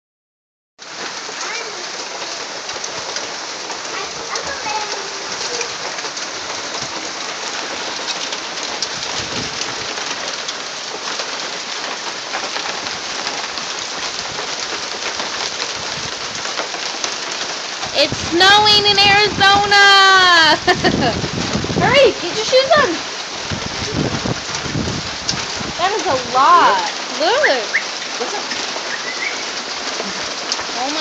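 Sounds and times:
hail pattering on ground: 0.8 - 31.0.

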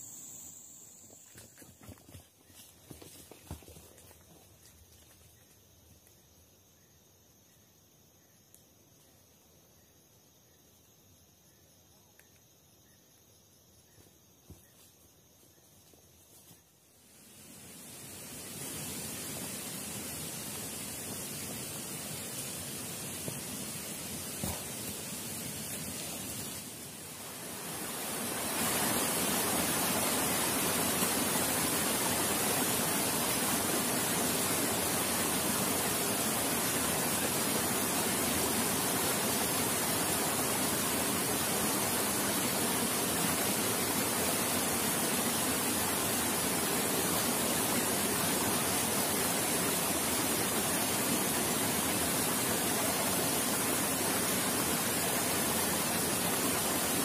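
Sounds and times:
high hiss: 0.0 - 1.7, 15.8 - 57.0
flowing water rushing: 17.6 - 57.0.

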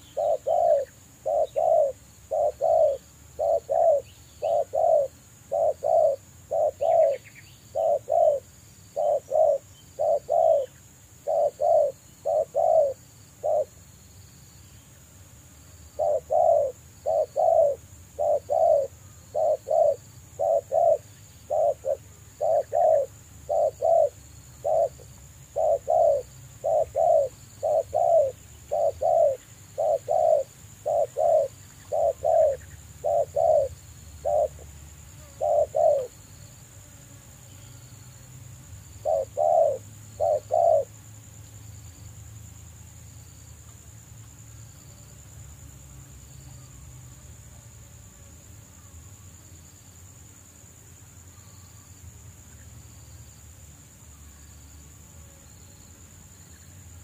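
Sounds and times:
dove cooing: 0.0 - 13.7, 16.0 - 36.2, 38.9 - 41.0.

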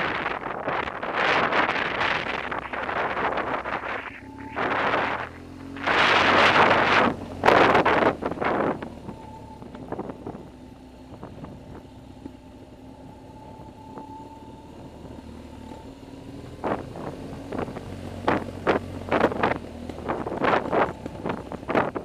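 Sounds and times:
wind buffeting microphone: 0.0 - 11.8, 16.5 - 22.0
motorcycle engine humming: 0.0 - 22.0.

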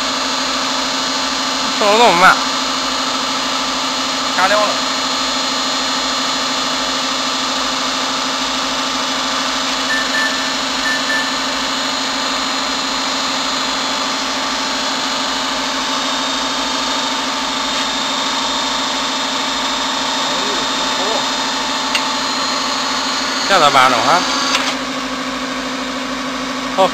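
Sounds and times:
press machine humming: 6.4 - 24.8.

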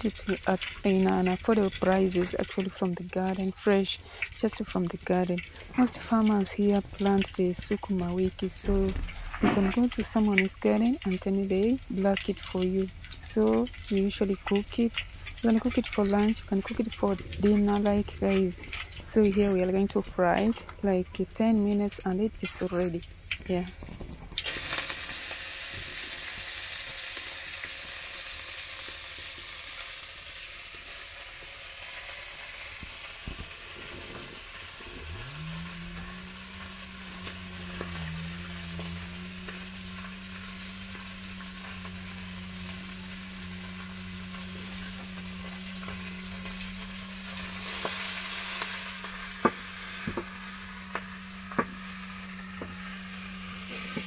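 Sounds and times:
steady low hum: 0.0 - 25.4, 33.3 - 54.0
greens sizzling in a metal pan: 0.0 - 54.0
stirring in a pan: 33.3 - 52.9.

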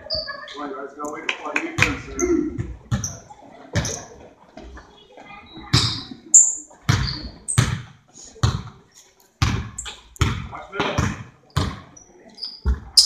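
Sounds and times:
basketball bouncing on gym floor: 1.8 - 3.2, 5.7 - 6.1, 6.8 - 8.7, 9.4 - 11.9, 12.6 - 13.0.

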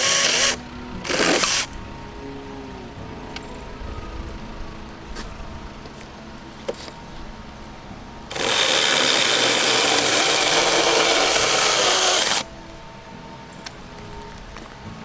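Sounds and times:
mini chainsaw cutting branch: 0.0 - 1.8, 8.3 - 12.5.

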